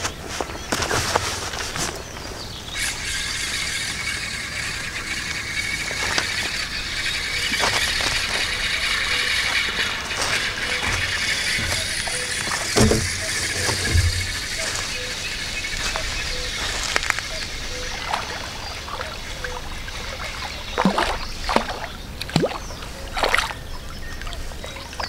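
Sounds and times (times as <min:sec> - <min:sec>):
fishing reel whirring: 0:02.7 - 0:20.8.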